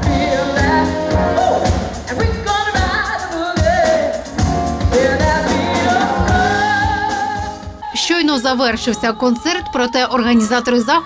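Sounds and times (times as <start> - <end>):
jazz band playing: 0.0 - 7.9
drum kit steady beat: 0.0 - 8.8
woman singing: 0.0 - 11.0.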